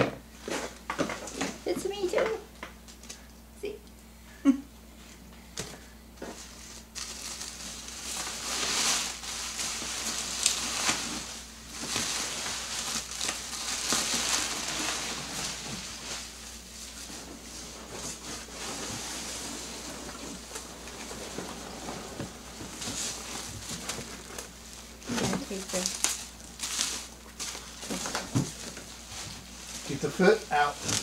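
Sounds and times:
plastic wrap crinkling: 6.2 - 31.0.

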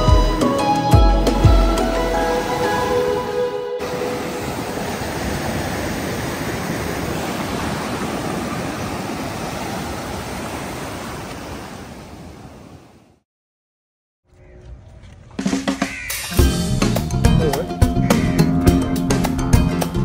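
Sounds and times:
ocean surf breaking: 1.9 - 13.2.

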